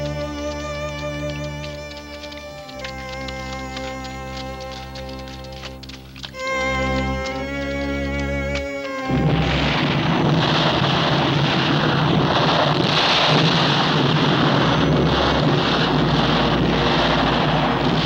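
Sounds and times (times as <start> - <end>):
explosion rumble and fire hiss: 9.1 - 18.0.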